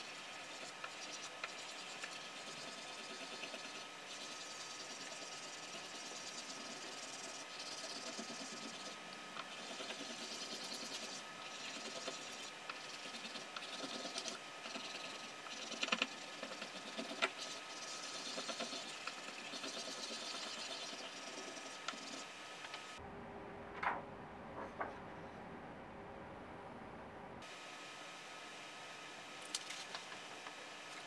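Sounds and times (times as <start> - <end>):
scratchy paper rubbing: 0.4 - 22.3.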